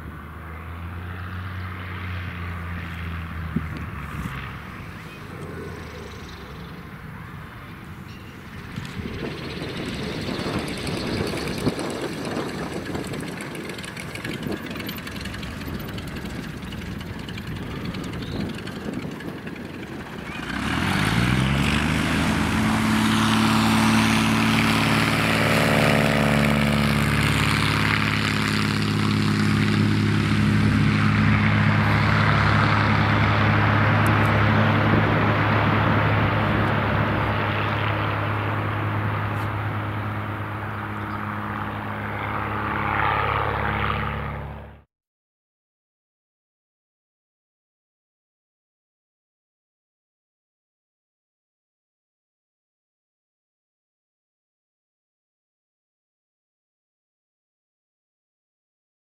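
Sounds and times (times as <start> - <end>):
propeller plane engine: 0.0 - 44.9.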